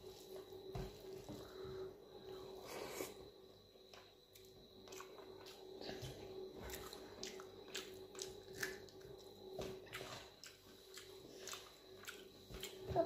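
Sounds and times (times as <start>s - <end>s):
chewing: 4.4s - 12.9s.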